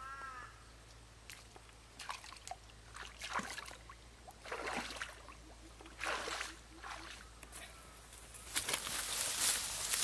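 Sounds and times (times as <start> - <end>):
water sloshing and splashing: 1.3 - 7.3.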